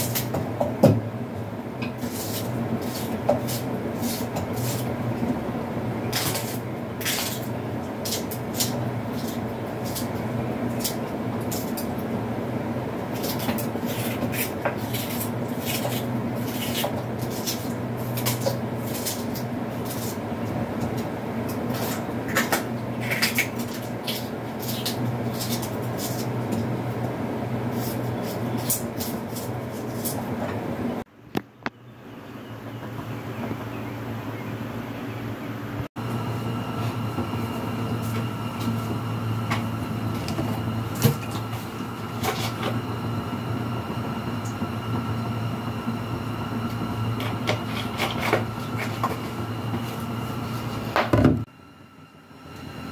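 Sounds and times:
steady low hum: 0:00.0 - 0:52.9
knife cutting vegetables: 0:01.9 - 0:04.9, 0:13.1 - 0:20.2.

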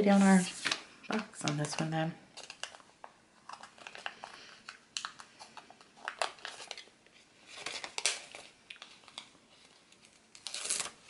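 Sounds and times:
paper stickers rustling: 0:03.4 - 0:11.0.

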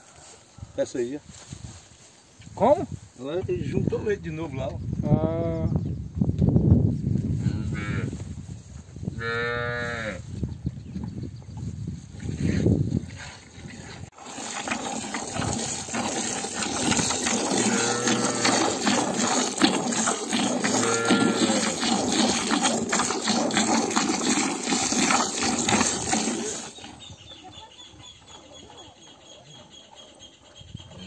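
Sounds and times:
cattle mooing: 0:17.4 - 0:19.0, 0:20.6 - 0:21.8.

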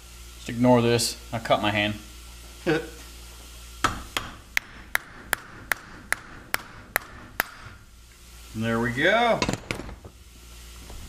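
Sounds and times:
hammer tapping on metal: 0:03.8 - 0:07.8.

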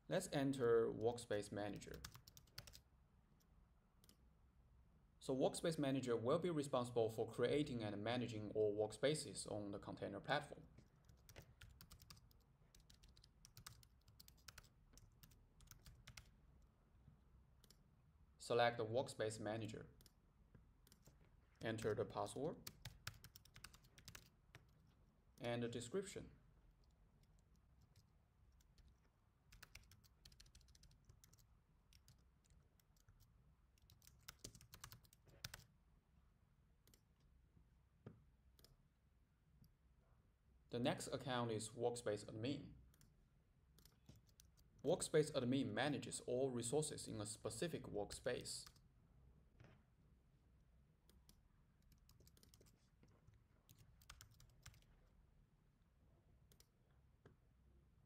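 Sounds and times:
computer keyboard typing: 0:01.9 - 0:02.8, 0:11.0 - 0:16.3, 0:20.8 - 0:22.0, 0:22.6 - 0:24.9, 0:26.8 - 0:35.7, 0:43.8 - 0:44.7, 0:51.2 - 0:54.9.

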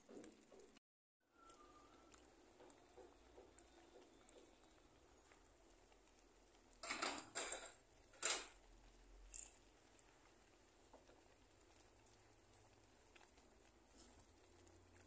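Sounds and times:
utensil clattering on pan: 0:06.8 - 0:08.6.

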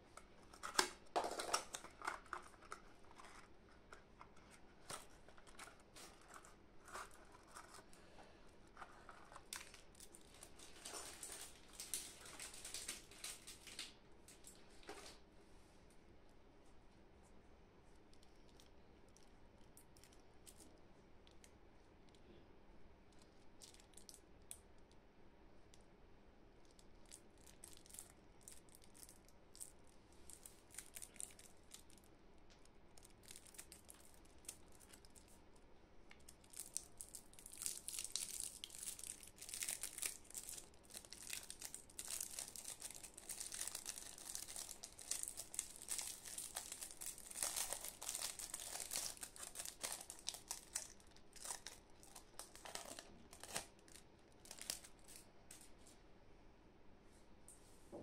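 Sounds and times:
foil wrapper crinkling and tearing: 0:00.4 - 0:07.9, 0:08.7 - 0:14.0, 0:27.1 - 0:32.0, 0:33.0 - 0:35.4, 0:36.2 - 0:55.7.

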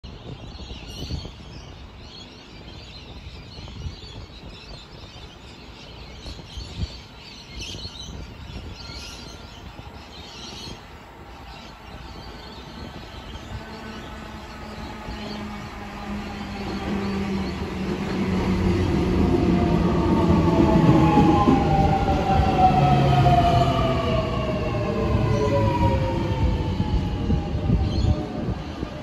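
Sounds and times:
birds chirping: 0:00.3 - 0:29.0
electric train humming: 0:09.4 - 0:29.0.

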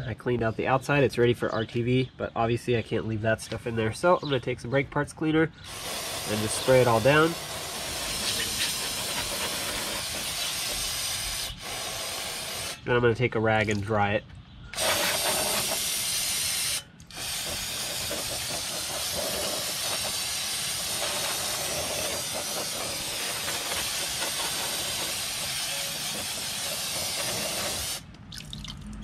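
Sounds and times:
aerosol spray hissing on metal: 0:05.7 - 0:12.8, 0:14.8 - 0:28.0.

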